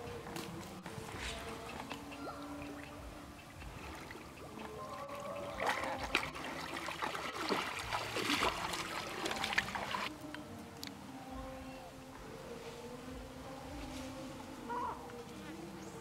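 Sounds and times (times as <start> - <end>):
water splashing and sloshing: 0.0 - 11.1.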